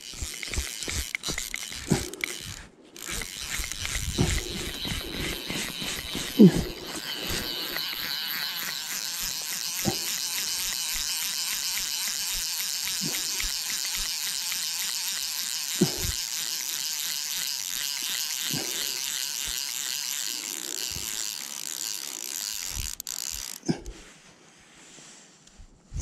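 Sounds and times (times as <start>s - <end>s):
fishing reel ratchet buzzing: 0.0s - 24.0s.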